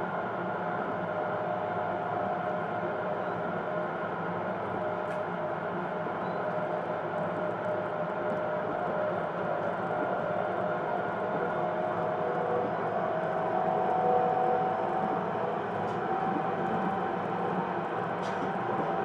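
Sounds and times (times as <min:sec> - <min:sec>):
steady whine of running gear: 0:00.2 - 0:19.0
train wheels rumbling on rails: 0:09.9 - 0:19.0.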